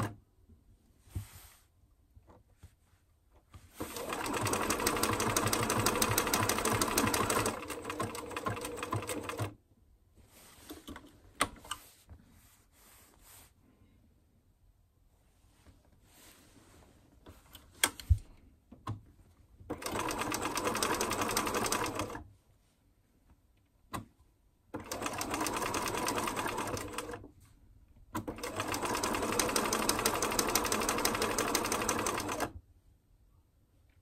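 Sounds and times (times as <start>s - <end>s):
sewing machine stitching: 3.8s - 9.6s, 19.7s - 22.2s, 24.8s - 27.2s, 28.2s - 32.6s.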